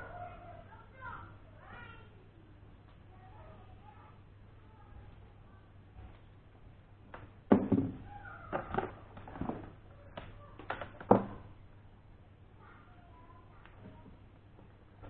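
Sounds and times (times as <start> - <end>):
objects knocking on a desk: 7.2 - 9.7, 11.0 - 11.4.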